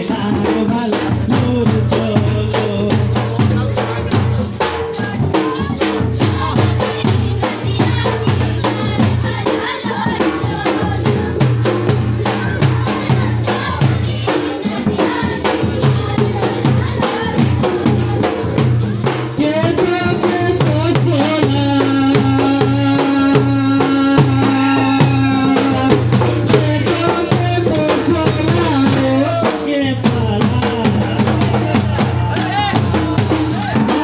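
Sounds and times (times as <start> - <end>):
drums beating fast rhythm: 0.0 - 34.0
jingling hand cymbals: 0.0 - 34.0.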